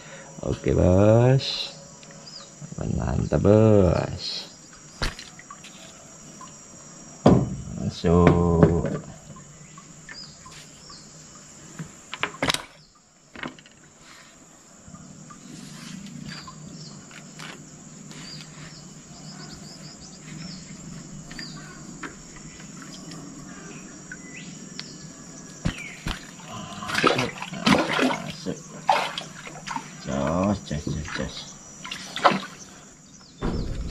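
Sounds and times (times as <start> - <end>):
insects droning: 0.0 - 33.9
clicks and knocks handling fish: 11.7 - 14.0.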